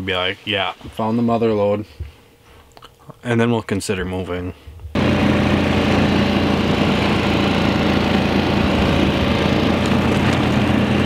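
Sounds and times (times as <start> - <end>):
small vehicle engine running: 5.0 - 11.0.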